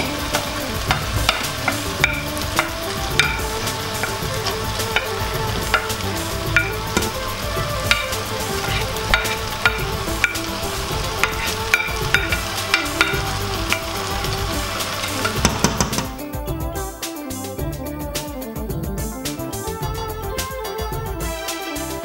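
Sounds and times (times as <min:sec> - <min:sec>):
onions sizzling in a pot: 0:00.0 - 0:16.2
wooden spoon scraping a plate: 0:06.6 - 0:13.9.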